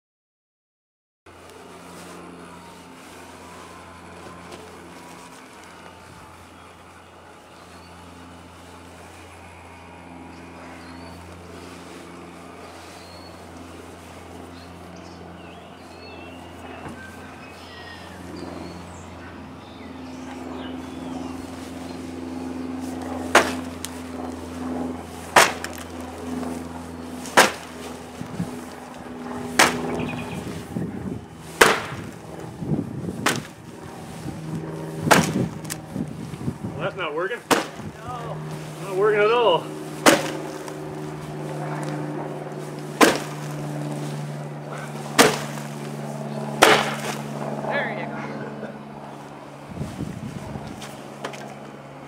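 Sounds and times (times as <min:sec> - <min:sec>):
blower fan humming: 0:01.3 - 0:52.0
blade chopping styrofoam: 0:23.3 - 0:23.7, 0:25.3 - 0:25.9, 0:27.2 - 0:27.7, 0:29.6 - 0:29.8, 0:31.6 - 0:32.1, 0:33.2 - 0:33.5, 0:35.0 - 0:35.8, 0:37.4 - 0:37.9, 0:40.0 - 0:40.7, 0:42.9 - 0:43.6, 0:45.0 - 0:45.8, 0:46.6 - 0:47.3.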